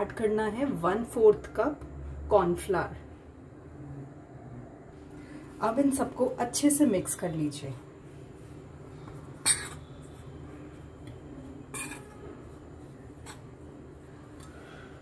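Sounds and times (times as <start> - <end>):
metal spoon scraping a wok: 11.7 - 12.3.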